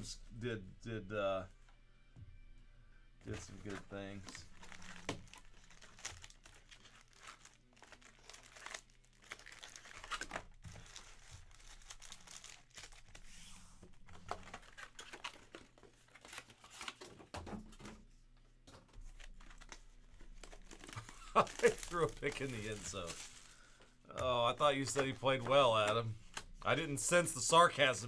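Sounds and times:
foil wrappers crinkling: 3.3s - 13.3s, 14.0s - 17.1s, 19.0s - 26.6s.

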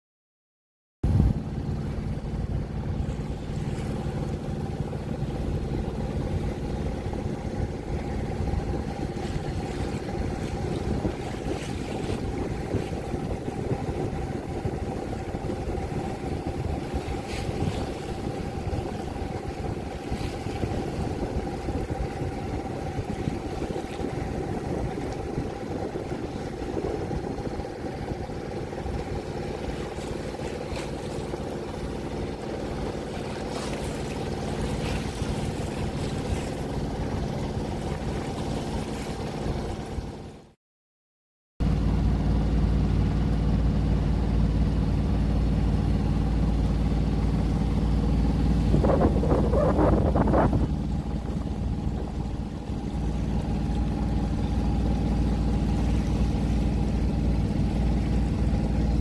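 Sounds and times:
boat engine drone: 1.0s - 40.6s, 41.6s - 59.0s
water noise: 1.0s - 40.6s, 41.6s - 59.0s
wind noise: 7.6s - 28.3s, 48.4s - 54.2s.

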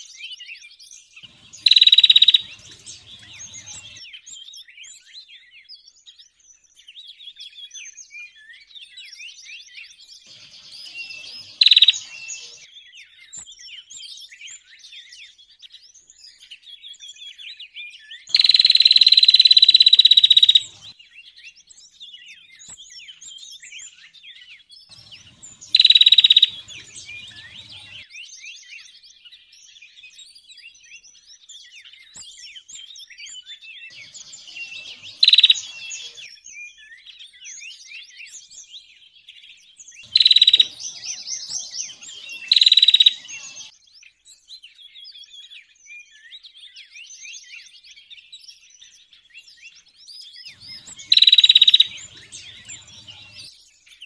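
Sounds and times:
small songbirds chirping: 0.0s - 54.0s
loud buzzy bird trills: 1.2s - 4.0s, 10.3s - 12.7s, 18.3s - 20.9s, 24.9s - 28.1s, 33.9s - 36.3s, 40.0s - 43.7s, 50.5s - 53.6s.

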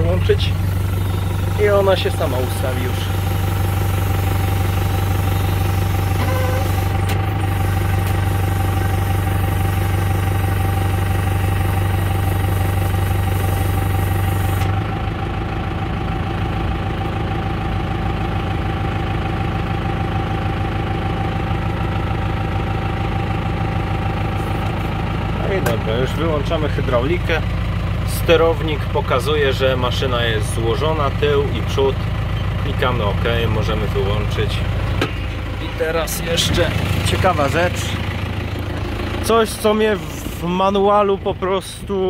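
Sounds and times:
deep hum: 0.0s - 18.8s, 31.6s - 40.6s
tractor engine running: 0.0s - 42.0s.

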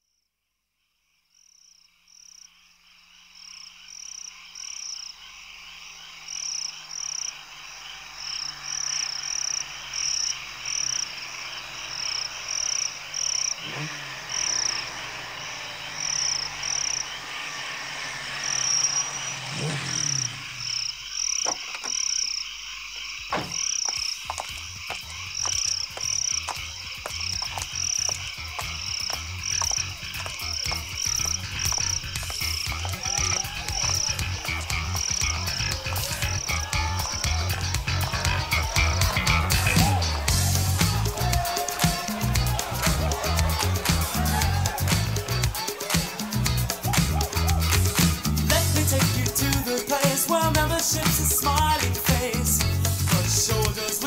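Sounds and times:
frogs calling: 0.0s - 54.0s
steady chirring background: 0.0s - 54.0s
scattered clicks: 23.7s - 40.0s.

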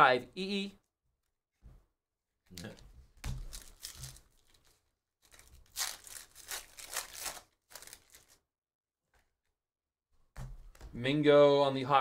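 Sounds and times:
foil wrapper crinkling and tearing: 3.4s - 8.4s.

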